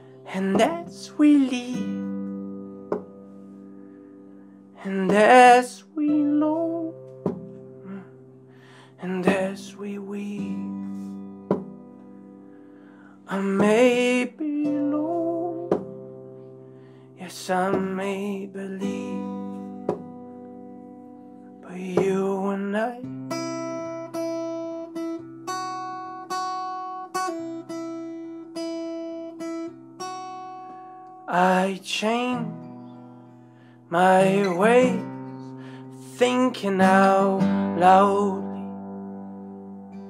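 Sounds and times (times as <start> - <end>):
acoustic guitar chords: 0.0 - 40.0
man singing: 0.3 - 2.0, 4.8 - 7.0, 9.0 - 11.0, 13.2 - 15.8, 17.2 - 19.6, 21.6 - 23.1, 31.3 - 32.6, 33.9 - 35.1, 36.0 - 38.8.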